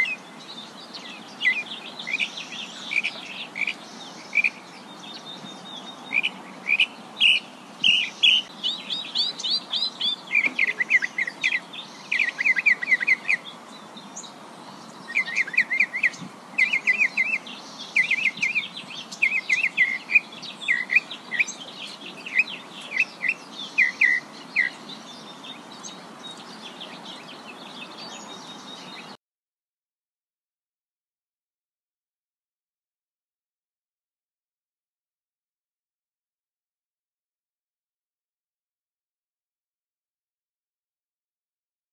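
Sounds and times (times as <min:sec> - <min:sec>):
songbirds chirping and trilling: 0:00.0 - 0:29.2
steady background hiss: 0:00.0 - 0:29.2.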